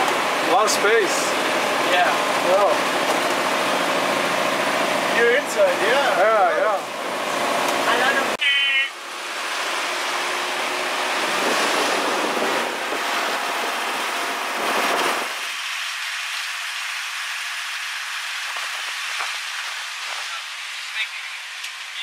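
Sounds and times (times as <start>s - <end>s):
road noise: 0.0s - 22.0s
truck engine rumble: 0.0s - 22.0s
wind rushing: 10.7s - 15.4s.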